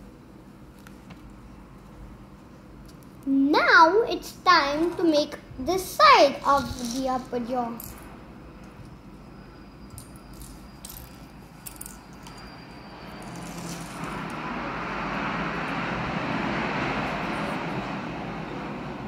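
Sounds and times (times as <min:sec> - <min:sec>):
airplane passing overhead: 0:11.8 - 0:19.0.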